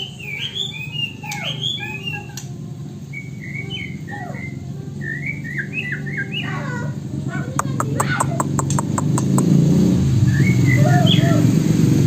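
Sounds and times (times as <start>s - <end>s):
bird singing whistled phrases: 0.0s - 2.5s, 3.1s - 6.9s, 10.3s - 11.5s.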